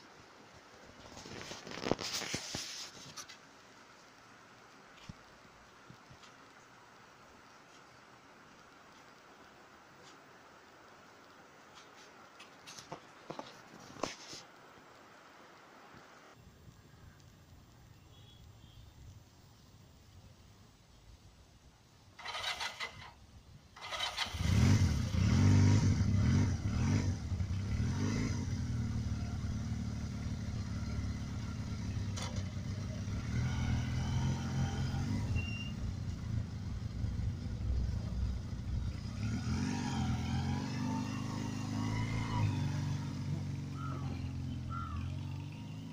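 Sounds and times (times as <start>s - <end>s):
motorcycle engine starting and revving: 22.2s - 23.2s, 23.8s - 45.9s
motorcycle riding off: 22.2s - 23.2s, 23.8s - 45.9s.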